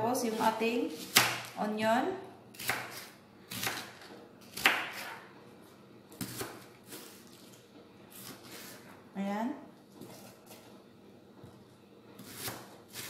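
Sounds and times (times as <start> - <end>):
knife slicing onion: 0.0 - 1.7, 2.5 - 5.3, 6.1 - 7.5, 8.1 - 8.9, 12.2 - 13.0.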